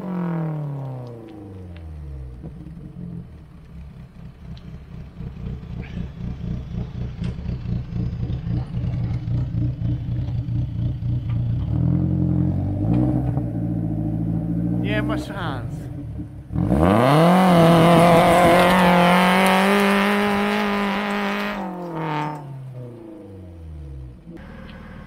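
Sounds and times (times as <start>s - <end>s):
truck engine revving: 0.0s - 25.0s.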